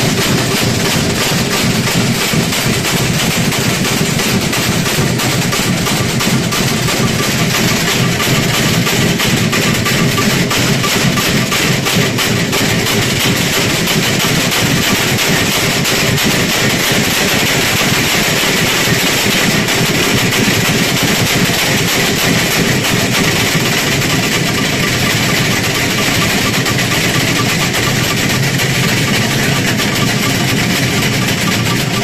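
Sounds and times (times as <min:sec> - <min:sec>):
cowbells clanging: 0:00.0 - 0:32.0.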